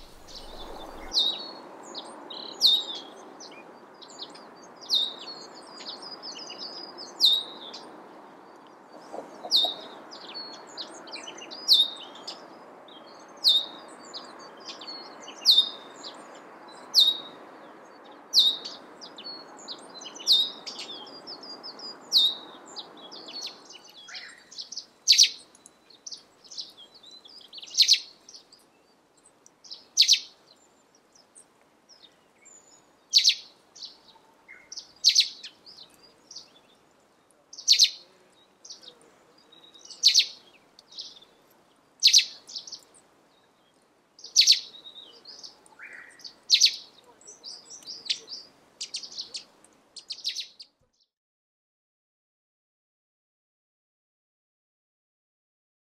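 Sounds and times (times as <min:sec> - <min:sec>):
sparrow chirping: 0:00.0 - 0:01.5, 0:09.1 - 0:12.4, 0:18.4 - 0:28.6, 0:29.7 - 0:30.4, 0:32.0 - 0:36.6, 0:37.6 - 0:41.4, 0:42.0 - 0:43.0, 0:44.2 - 0:50.8.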